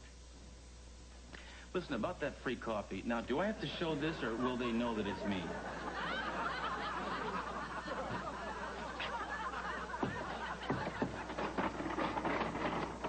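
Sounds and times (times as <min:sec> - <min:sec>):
audience laughing: 0:03.4 - 0:12.8.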